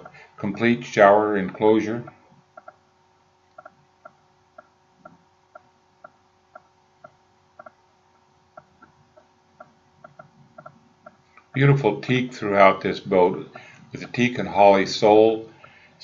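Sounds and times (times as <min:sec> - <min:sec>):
faint regular ticking: 0:00.0 - 0:11.7, 0:15.4 - 0:16.0
faint steady hum: 0:00.0 - 0:16.0.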